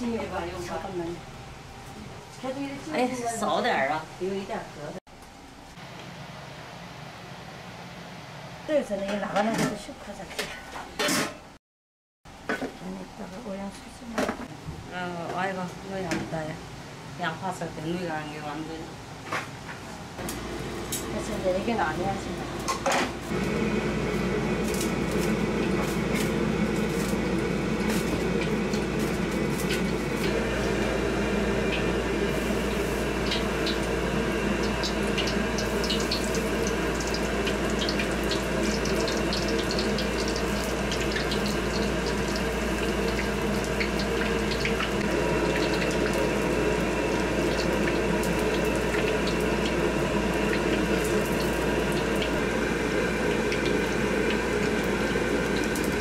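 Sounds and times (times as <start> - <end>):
gas burner drone: 0.0 - 5.0, 5.6 - 9.9, 20.0 - 56.0
eggplants deep-frying in oil: 20.2 - 56.0.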